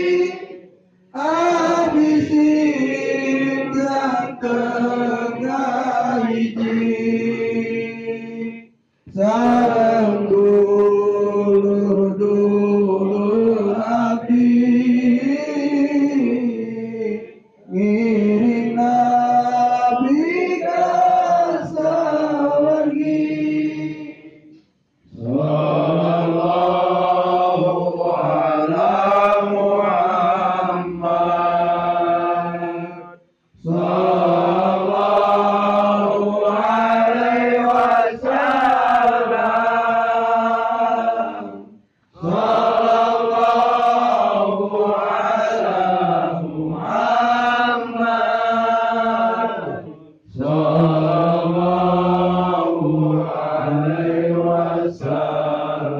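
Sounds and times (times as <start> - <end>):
group chanting devotional song: 0.0 - 55.9.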